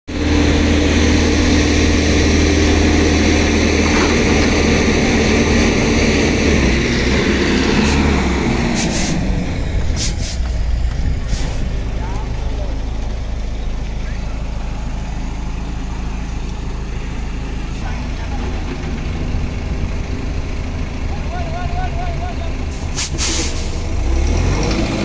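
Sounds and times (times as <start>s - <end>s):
diesel engine under load: 0.1s - 25.0s
short hisses: 8.8s - 9.3s, 9.9s - 10.6s, 22.7s - 23.8s.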